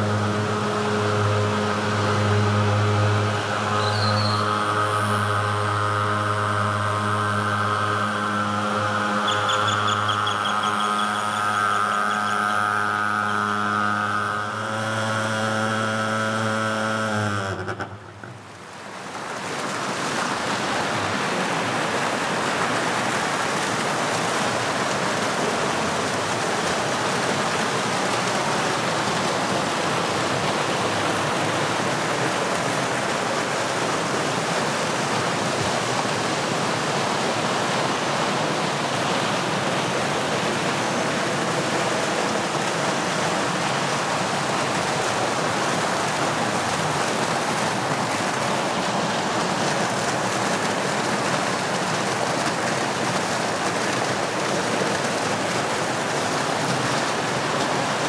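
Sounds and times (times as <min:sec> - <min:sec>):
running water splashing: 0:17.3 - 0:58.0.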